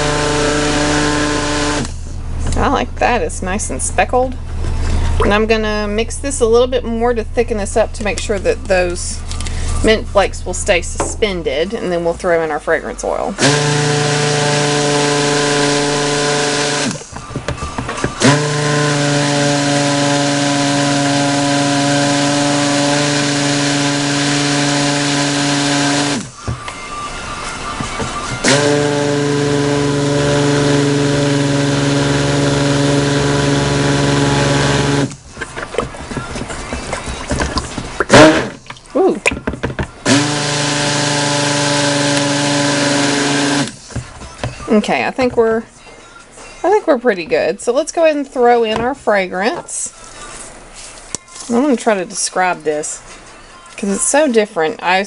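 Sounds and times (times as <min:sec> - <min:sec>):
stick blender motor whine: 0:00.0 - 0:02.0, 0:13.4 - 0:26.8, 0:27.5 - 0:38.6, 0:39.7 - 0:44.0.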